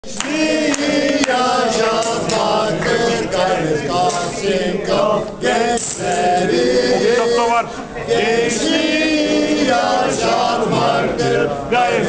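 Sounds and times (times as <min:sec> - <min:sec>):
men singing a march in unison: 0:00.0 - 0:12.0.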